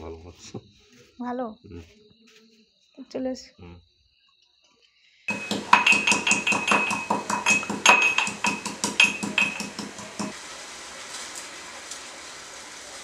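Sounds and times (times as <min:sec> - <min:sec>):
metal spoon clinking in steel cup: 0:05.3 - 0:10.3.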